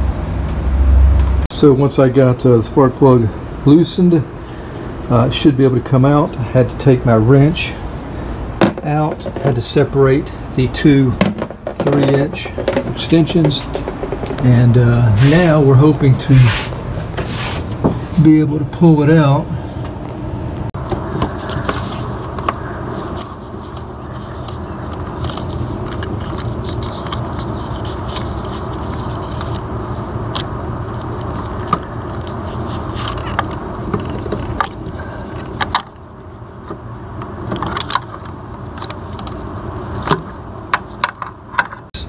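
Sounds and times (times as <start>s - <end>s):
metal clicks and scrapes: 21.5s - 29.7s.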